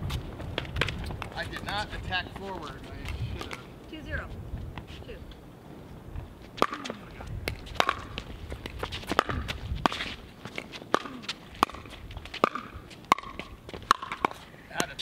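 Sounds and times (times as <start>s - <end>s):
footsteps shuffling on court: 5.8s - 14.6s
ball bouncing on hard court: 6.6s - 15.0s
paddles hitting plastic ball: 6.6s - 15.0s.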